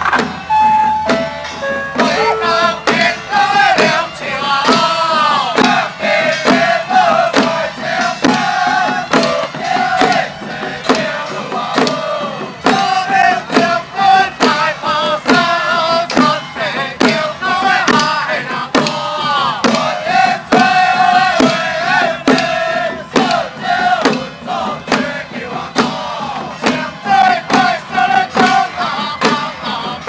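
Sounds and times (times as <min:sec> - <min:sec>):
sharp percussive strikes: 0:00.0 - 0:04.9
crowd of men chanting: 0:02.1 - 0:30.0.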